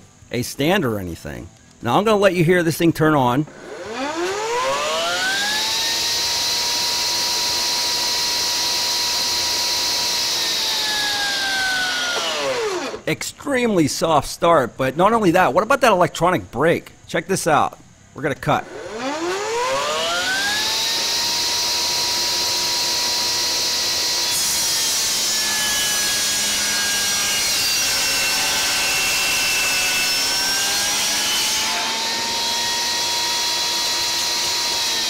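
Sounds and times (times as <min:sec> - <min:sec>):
table saw motor running: 0:03.5 - 0:13.1, 0:18.6 - 0:35.0
saw blade ripping plywood: 0:18.9 - 0:35.0.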